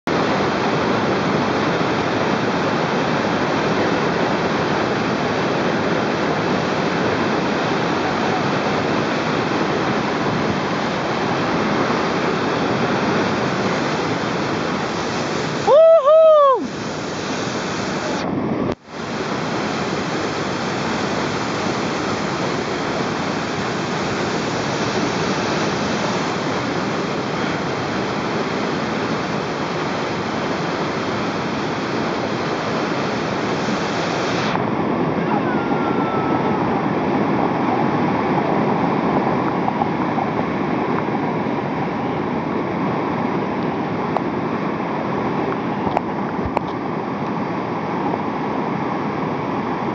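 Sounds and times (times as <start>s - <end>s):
whitewater rapid rushing: 0.1s - 49.9s
person shouting: 15.6s - 16.7s, 35.2s - 36.7s.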